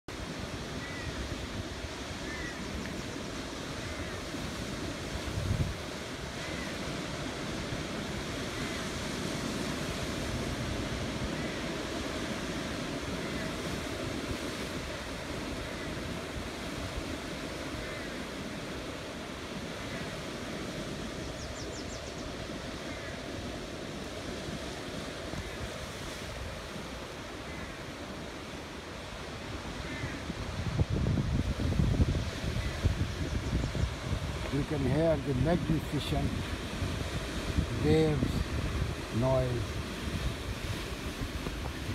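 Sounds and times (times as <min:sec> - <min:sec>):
surf breaking over rocks: 0:33.9 - 0:41.9.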